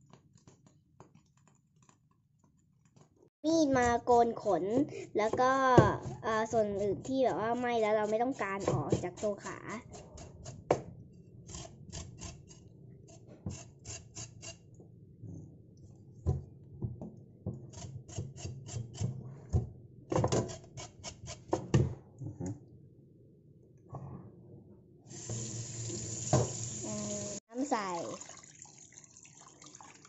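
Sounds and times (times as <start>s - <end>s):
tap running: 25.3s - 26.7s.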